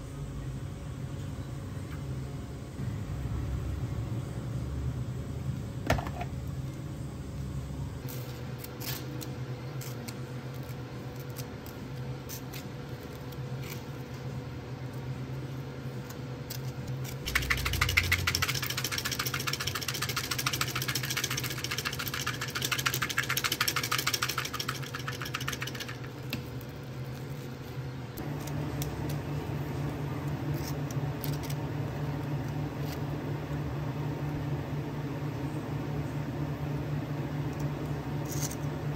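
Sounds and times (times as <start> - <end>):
kitchen equipment hum: 0.0 - 38.9
machine rattling whirr: 16.9 - 27.6.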